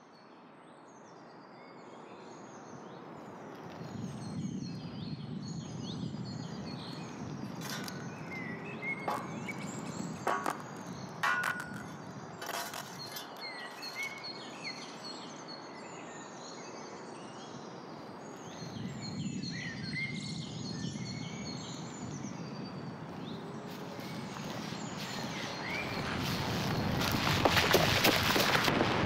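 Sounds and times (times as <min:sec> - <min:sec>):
outdoor background noise: 0:00.0 - 0:29.0
small birds chirping: 0:01.9 - 0:28.6
fast crackling clicks: 0:25.2 - 0:29.0.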